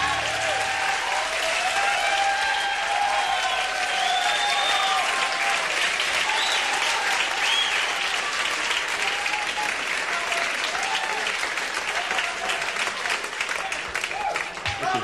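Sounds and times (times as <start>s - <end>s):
audience applauding and cheering: 0.0s - 15.0s
high whistles: 3.9s - 5.1s, 7.4s - 7.9s.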